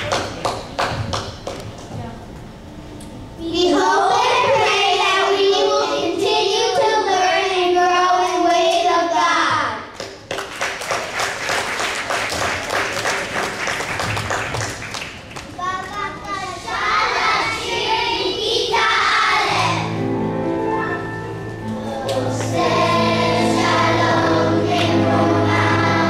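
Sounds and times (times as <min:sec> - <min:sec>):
children singing together: 0:03.4 - 0:08.2, 0:16.6 - 0:20.0, 0:21.6 - 0:26.0
audience applause: 0:10.3 - 0:15.7.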